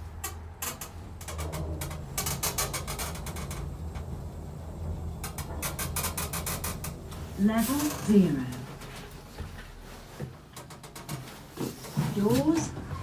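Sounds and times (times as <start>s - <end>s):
fast clicking and rattling: 0.0s - 9.5s, 10.5s - 11.4s
lift drive humming: 0.0s - 9.5s.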